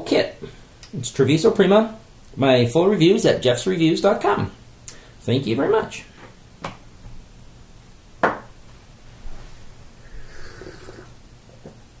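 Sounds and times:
knocks on countertop: 8.2s - 8.5s.

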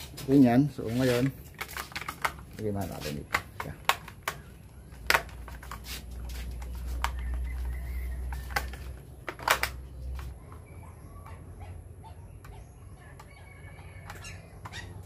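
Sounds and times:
plastic clicks and knocks: 1.6s - 5.8s, 8.3s - 10.3s.

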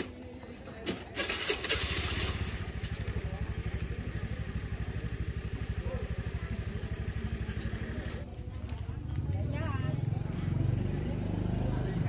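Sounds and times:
motorcycle engine idling: 1.3s - 10.6s.

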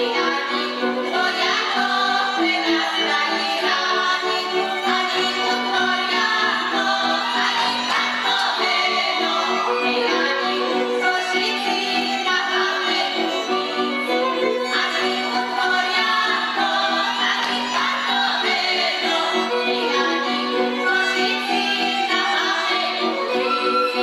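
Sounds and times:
fiddle playing: 0.0s - 24.0s
women singing: 0.0s - 24.0s.

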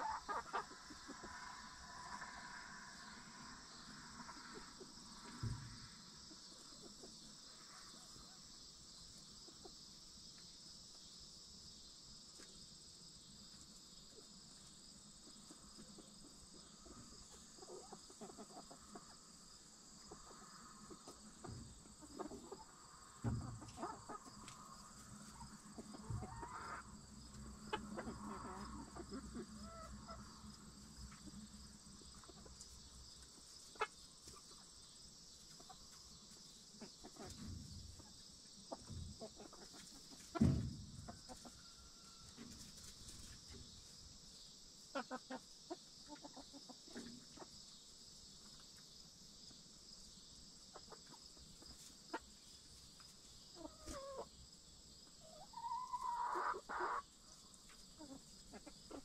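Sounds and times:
hens clucking softly: 0.0s - 8.5s, 14.1s - 34.7s, 35.4s - 43.9s, 44.9s - 47.8s, 50.6s - 54.4s, 55.0s - 59.0s
high-pitched insect chorus: 0.0s - 59.0s.

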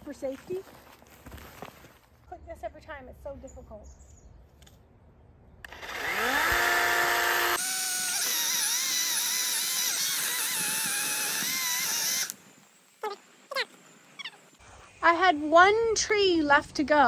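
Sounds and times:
electric chainsaw whining: 5.6s - 12.4s
chain cutting tree trunk: 5.7s - 12.4s.

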